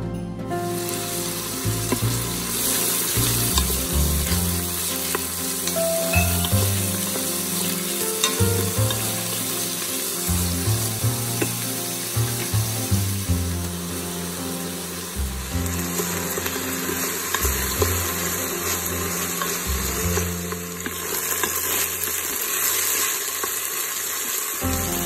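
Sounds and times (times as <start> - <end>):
low background music: 0.0 - 22.7, 24.6 - 25.0
onions sizzling in hot oil: 0.7 - 25.0
utensil clicking against pot: 8.2 - 9.0.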